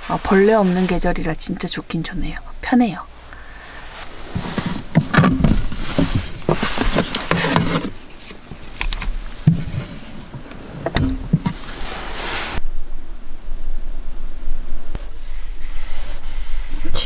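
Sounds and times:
rustling inside cupboard: 3.8 - 12.6.

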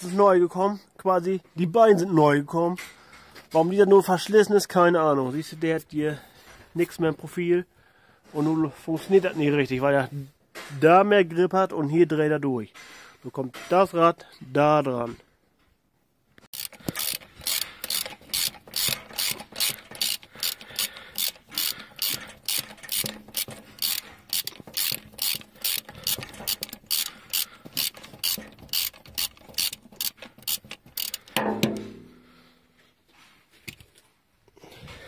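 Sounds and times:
ratchet wrench clicking: 16.5 - 31.4
loud thump: 31.4 - 32.3.

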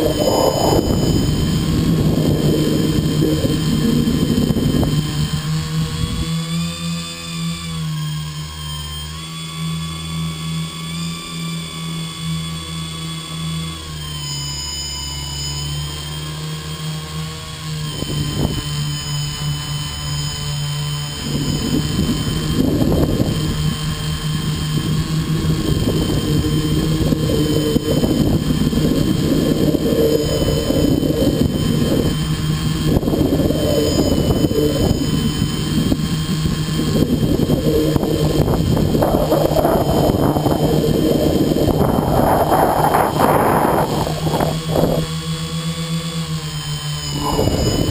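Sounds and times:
gusty rushing wind noise: 0.0 - 6.4, 17.9 - 45.6, 47.0 - 47.9
electric motors and propellers humming: 0.0 - 47.9.

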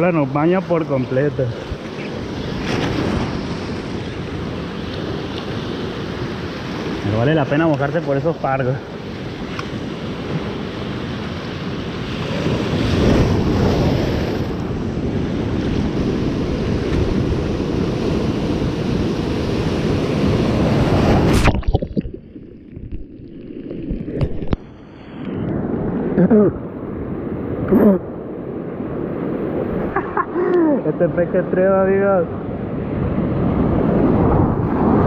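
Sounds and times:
waves washing over seawall: 0.0 - 22.2.

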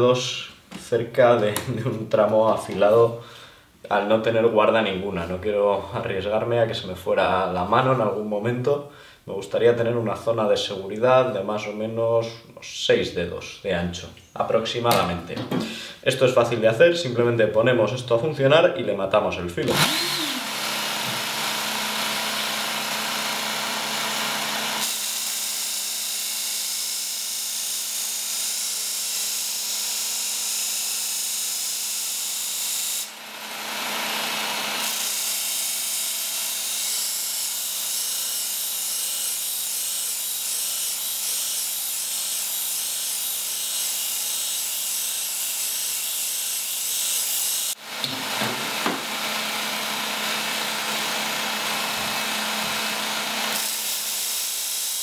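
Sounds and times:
sharpener motor hum: 19.7 - 46.0.

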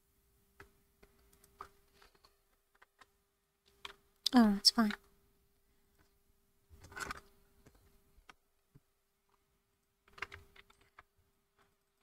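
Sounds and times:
faint keyboard typing: 0.6 - 5.1, 10.0 - 12.0.

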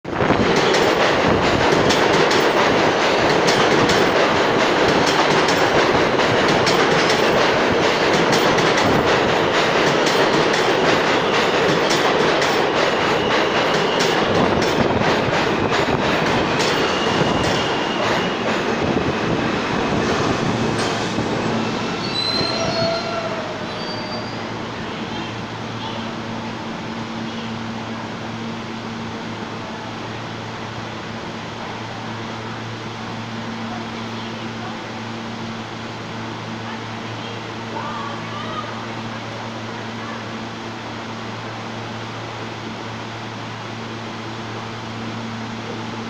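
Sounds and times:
subway train rumble: 0.0 - 46.0
high wheel squeals: 21.3 - 26.0.

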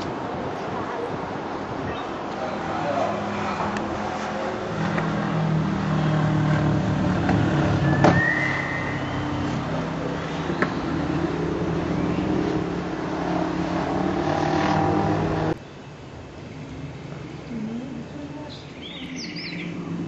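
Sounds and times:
vehicle engine humming: 0.0 - 20.0
short high whistle: 7.8 - 9.3.

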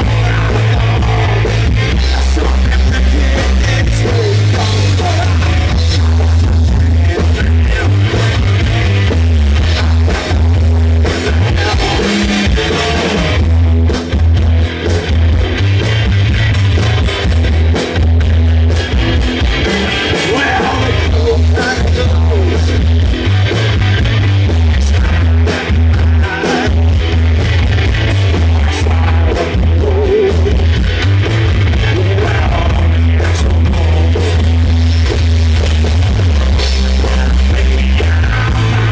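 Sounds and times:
person singing: 0.0 - 8.6, 9.6 - 13.4, 19.9 - 22.8, 24.7 - 26.9, 28.4 - 30.6, 31.8 - 34.4, 36.2 - 38.9
blues-rock band playing: 0.0 - 38.9.

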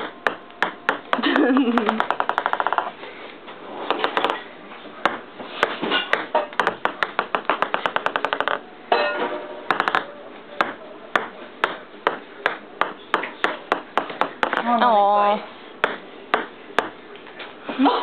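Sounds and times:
ping pong ball bouncing on table: 0.0 - 2.9, 3.9 - 4.4, 5.0 - 8.6, 9.7 - 14.8, 15.8 - 17.0.

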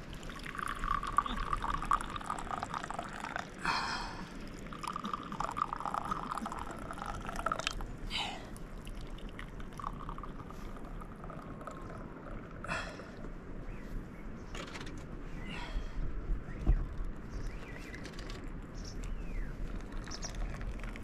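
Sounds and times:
tea pouring into glass: 0.1 - 3.6, 4.4 - 7.8, 8.7 - 12.4, 19.7 - 21.0.

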